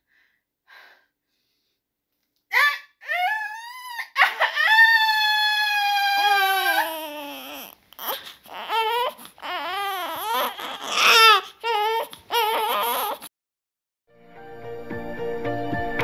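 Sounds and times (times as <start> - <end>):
woman screaming: 2.5 - 7.6
newborn baby crying: 3.1 - 13.3.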